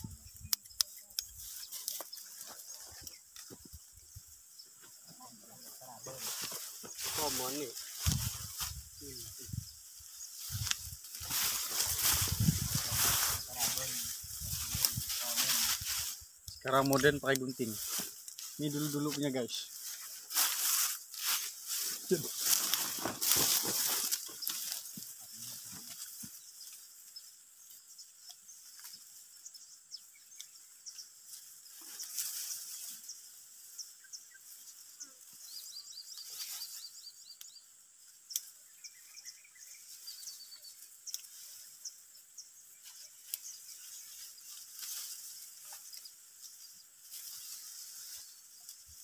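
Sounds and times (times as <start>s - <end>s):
high insect drone: 0.0s - 49.0s
dry stalks rustling and snapping: 0.2s - 5.0s, 6.1s - 29.3s, 30.2s - 39.0s, 39.8s - 49.0s
bird chirps: 23.9s - 46.9s.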